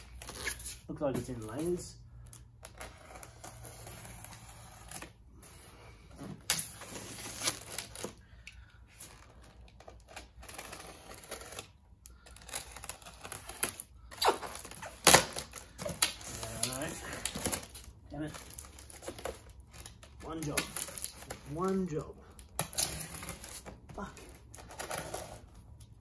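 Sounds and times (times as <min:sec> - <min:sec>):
box cutter slicing tape: 0:12.4 - 0:17.8, 0:22.5 - 0:25.5.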